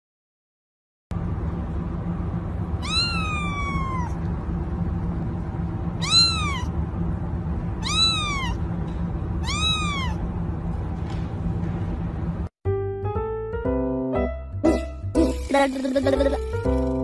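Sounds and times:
steady low hum: 0:01.1 - 0:12.5
kitten meowing: 0:02.8 - 0:04.2, 0:06.0 - 0:06.7, 0:07.8 - 0:08.6, 0:09.4 - 0:10.2.

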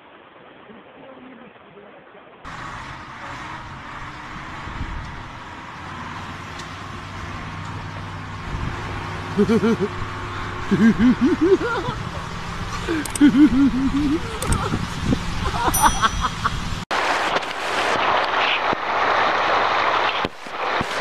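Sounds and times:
water rushing and splashing: 0:00.0 - 0:21.0
truck engine running under load: 0:02.5 - 0:16.8.

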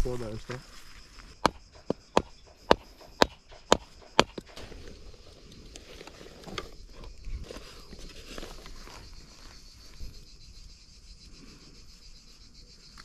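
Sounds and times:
footsteps on dry undergrowth: 0:00.0 - 0:01.7, 0:07.4 - 0:09.8
fishing rods rustling in bag: 0:05.5 - 0:09.2.

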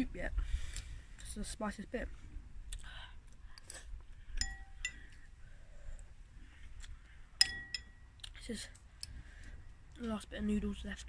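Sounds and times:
metal fork clinking on ceramic bowl: 0:07.4 - 0:08.0.

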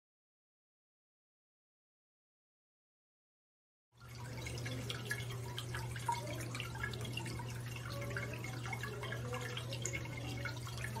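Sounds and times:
fountain water bubbling and trickling: 0:04.0 - 0:11.0.

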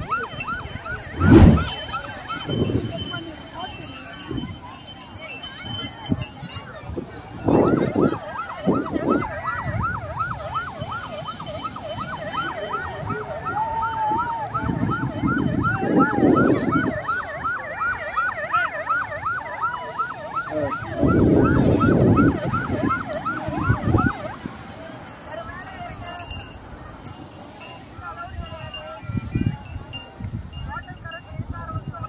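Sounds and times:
wind buffeting microphone: 0:00.0 - 0:18.1, 0:19.0 - 0:32.0
electronic siren tone warbling: 0:00.1 - 0:02.2.

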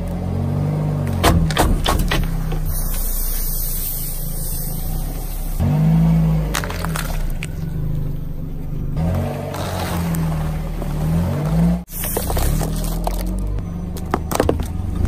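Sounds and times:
tyre crushing food: 0:09.5 - 0:14.8.

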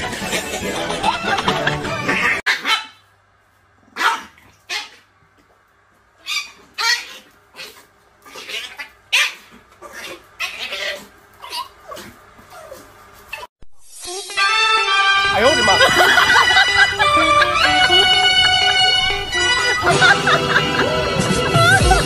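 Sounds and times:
music: 0:00.0 - 0:02.4, 0:13.8 - 0:22.0
small dog barking: 0:02.5 - 0:03.0, 0:03.9 - 0:05.1.

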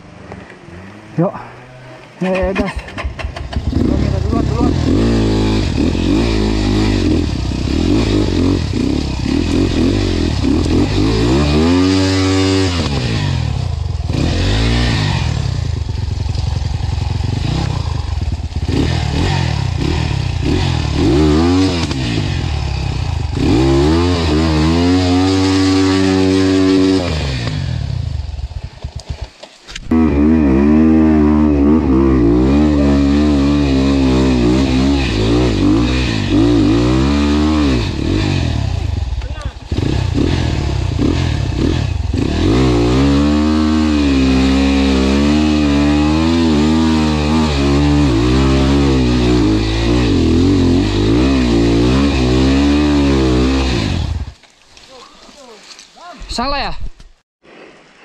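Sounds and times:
dirt bike engine revving: 0:00.0 - 0:54.4.

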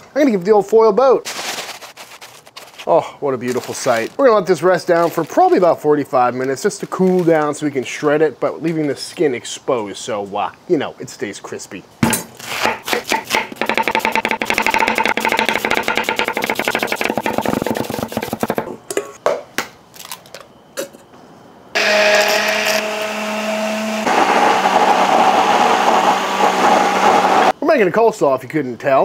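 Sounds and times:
knife chopping on wood: 0:12.0 - 0:18.6
stick blender running: 0:13.4 - 0:18.5, 0:21.8 - 0:27.5.

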